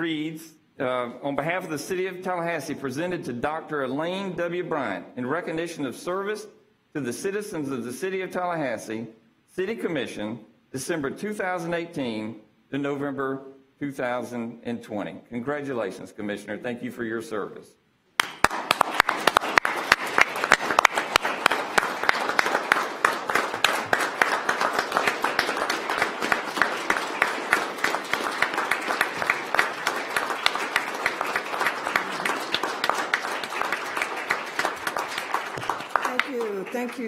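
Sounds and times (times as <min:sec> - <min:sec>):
crowd applause: 0:18.2 - 0:37.0.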